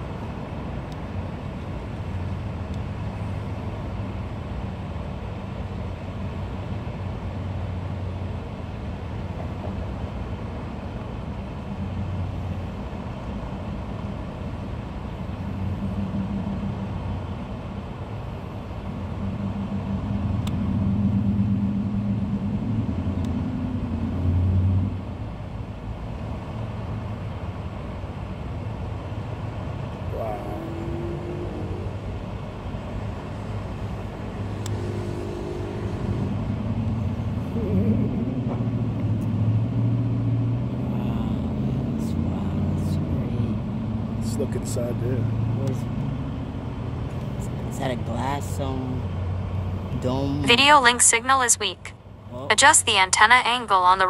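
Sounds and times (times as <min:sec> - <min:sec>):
vehicle engine rumble: 0:00.0 - 0:54.0
vehicle passing: 0:15.2 - 0:53.5.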